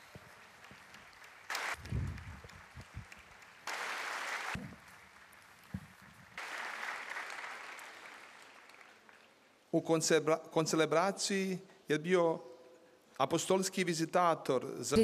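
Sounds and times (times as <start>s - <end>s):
large crowd applauding: 0.0s - 9.5s.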